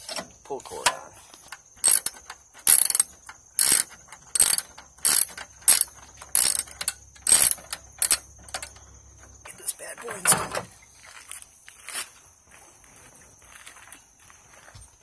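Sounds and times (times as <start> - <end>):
socket ratchet clicking: 1.5 - 8.9.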